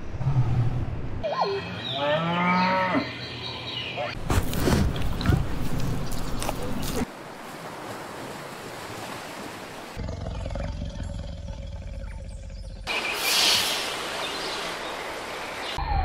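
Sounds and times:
hiss of sea and wind: 0:12.9 - 0:15.8.

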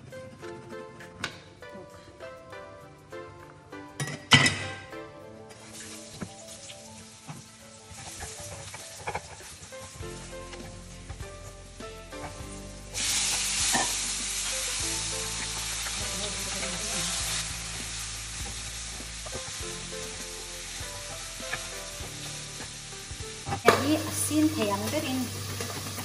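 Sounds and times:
soft background music: 0:00.0 - 0:26.0
food sizzling in a frying pan: 0:05.5 - 0:26.0.

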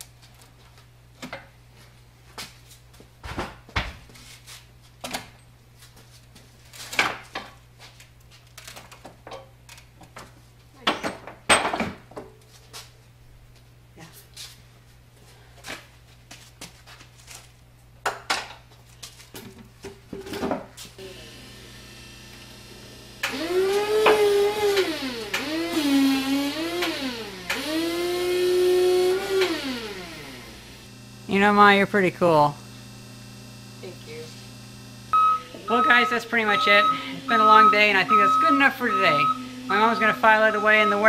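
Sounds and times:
cast-iron parts knocking and clanking: 0:10.8 - 0:12.4
motor whining: 0:21.0 - 0:41.0.

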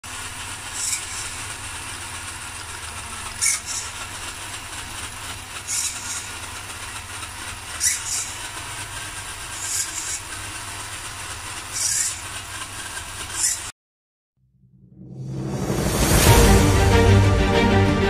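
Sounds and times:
electric motor whir: 0:00.1 - 0:13.7.

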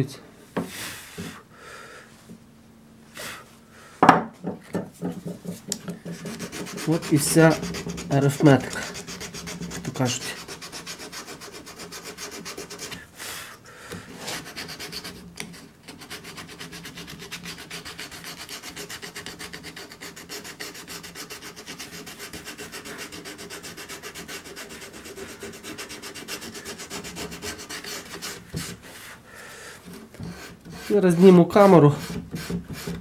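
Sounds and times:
sandpaper rubbing on wood: 0:05.0 - 0:13.0, 0:14.2 - 0:29.2, 0:30.2 - 0:33.0.

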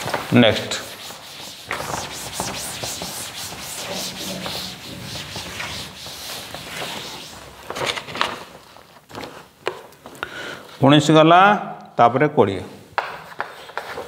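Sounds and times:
cloth wiping a chalkboard: 0:00.0 - 0:09.5, 0:13.0 - 0:14.0.

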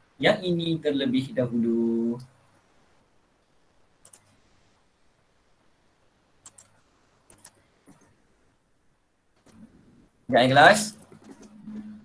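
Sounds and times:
computer mouse clicks: 0:04.0 - 0:04.4, 0:06.4 - 0:08.2, 0:10.9 - 0:11.6.

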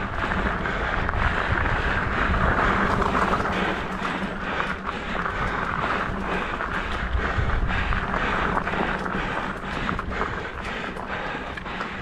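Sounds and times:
wind on microphone: 0:00.0 - 0:10.7
bike ticks and rattles: 0:00.0 - 0:12.0
bike tyres on dirt: 0:00.0 - 0:12.0.

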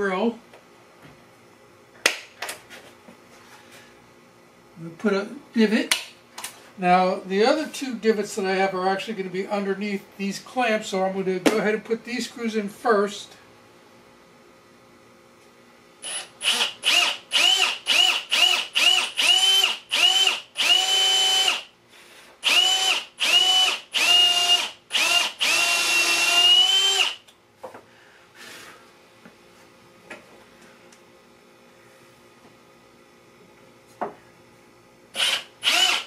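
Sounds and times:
cordless drill whining: 0:16.0 - 0:21.6, 0:22.4 - 0:27.2, 0:35.2 - 0:36.0.

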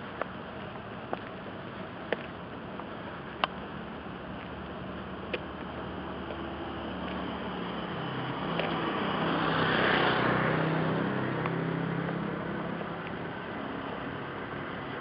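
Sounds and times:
vehicle passing by: 0:05.8 - 0:15.0.

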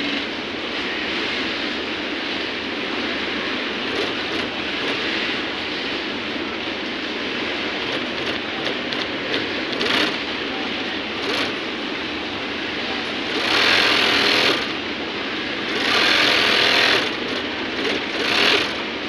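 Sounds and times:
steady background noise: 0:00.0 - 0:19.0
industrial sewing machine stitching: 0:03.9 - 0:05.0, 0:07.9 - 0:10.2, 0:11.2 - 0:11.6, 0:13.3 - 0:14.8, 0:15.7 - 0:18.8.

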